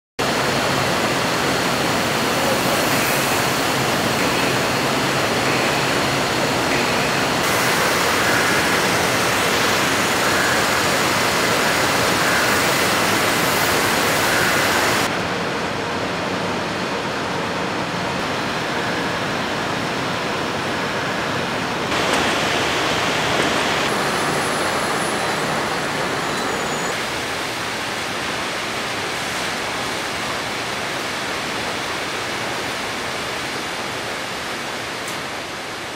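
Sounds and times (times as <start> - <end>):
canning line machine din: 2.3 - 15.1, 21.9 - 27.0.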